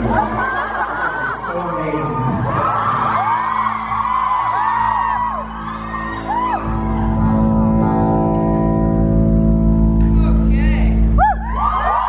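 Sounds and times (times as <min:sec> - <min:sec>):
audience whooping and screaming: 0:00.1 - 0:08.2, 0:11.2 - 0:12.0.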